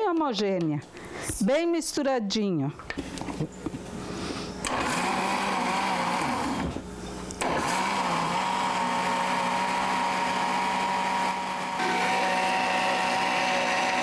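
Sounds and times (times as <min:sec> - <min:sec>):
blender motor running: 0:04.6 - 0:06.8, 0:07.4 - 0:14.0.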